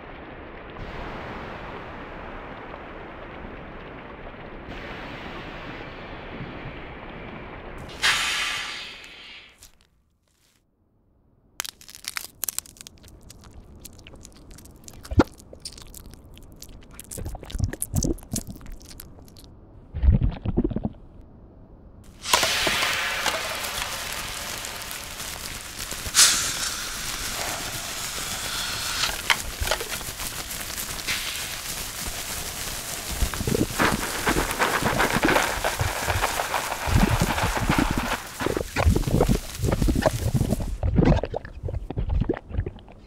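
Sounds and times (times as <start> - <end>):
steady hiss: 7.8 - 9.8, 22.1 - 40.8
crackling and crunching clicks: 11.6 - 21.0, 22.1 - 43.0.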